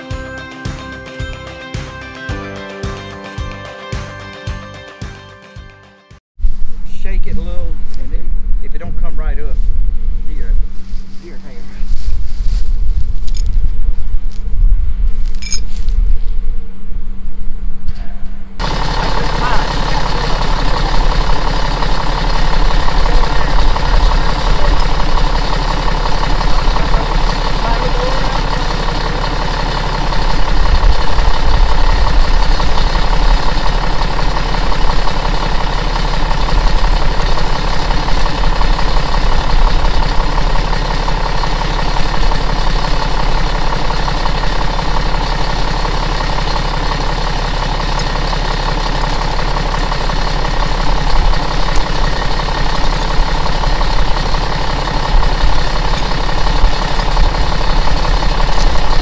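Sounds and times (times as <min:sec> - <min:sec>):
diesel engine idling: 0:18.4 - 0:59.0.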